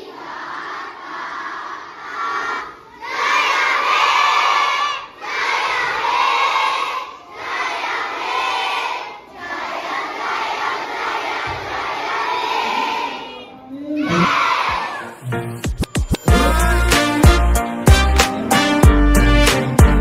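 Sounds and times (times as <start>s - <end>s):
children shouting in unison: 2.0s - 15.2s.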